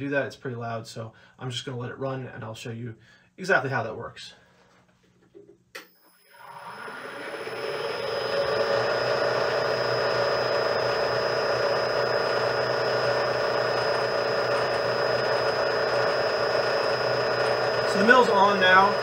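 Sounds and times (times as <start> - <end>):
milling machine motor humming: 5.8 - 19.0
thin high whine: 5.8 - 19.0.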